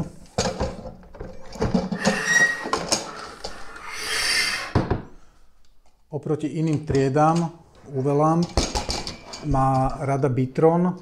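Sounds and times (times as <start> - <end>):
short squeak: 1.9 - 5.0.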